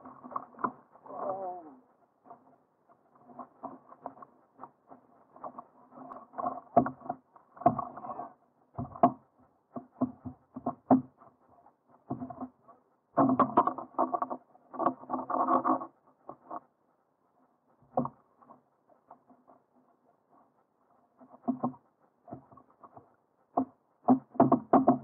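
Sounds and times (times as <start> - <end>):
knocks and taps on kayak: 6.4 - 8.1, 8.8 - 9.2, 9.8 - 11.2, 13.2 - 15.4, 21.4 - 25.0.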